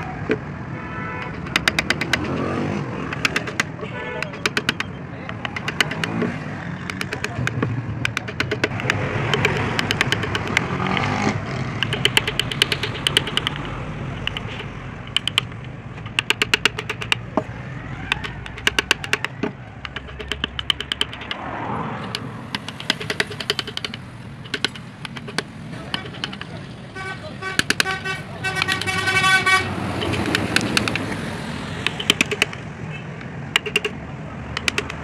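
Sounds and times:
road traffic hum: 0.0s - 35.0s
chisel cutting into wood: 1.3s - 21.4s, 22.1s - 26.5s, 27.6s - 28.0s, 30.0s - 31.2s, 31.8s - 32.6s.

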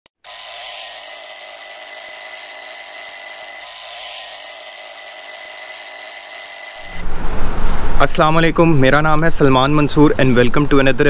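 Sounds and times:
alarm clock bell ringing: 0.2s - 7.0s.

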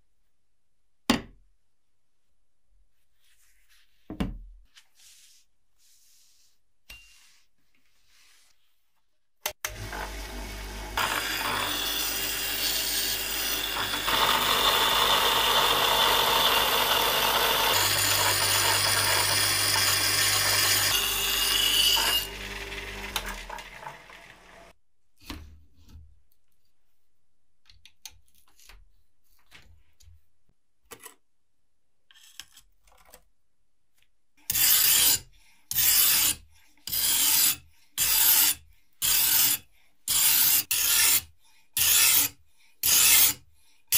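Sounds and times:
electric power tool motor hum: 9.7s - 24.7s
hand filing strokes: 34.5s - 43.9s.

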